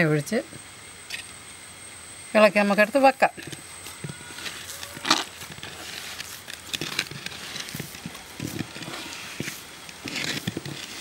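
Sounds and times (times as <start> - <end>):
hands kneading dough: 4.2 - 11.0.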